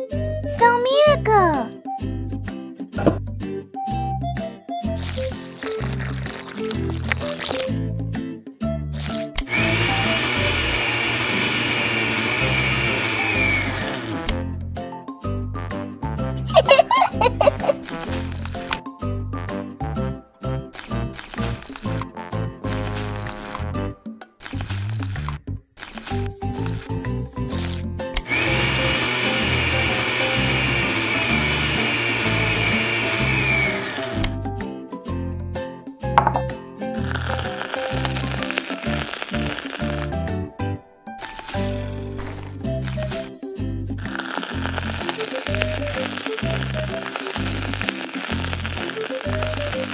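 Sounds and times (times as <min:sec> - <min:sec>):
background music: 0:00.0 - 0:49.9
hand mixer motor whine: 0:09.0 - 0:14.4, 0:28.2 - 0:34.4, 0:37.1 - 0:40.1, 0:41.2 - 0:43.4, 0:44.0 - 0:49.9.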